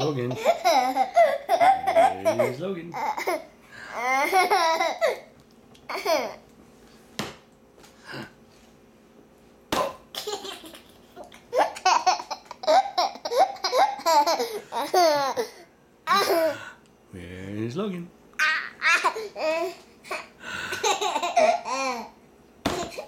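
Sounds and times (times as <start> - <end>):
baby laughing: 0.0 - 5.3, 5.9 - 6.4, 9.8 - 16.6, 18.4 - 22.1.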